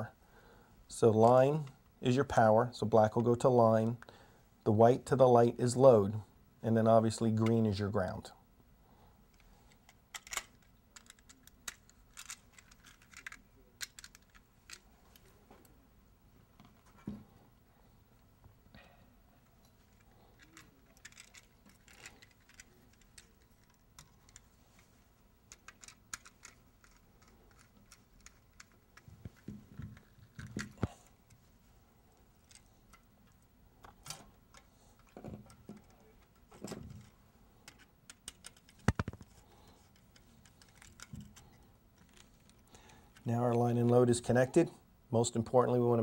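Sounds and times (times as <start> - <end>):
small clicks and scrapes: 9.3 - 15.7, 19.5 - 31.5, 32.1 - 43.3.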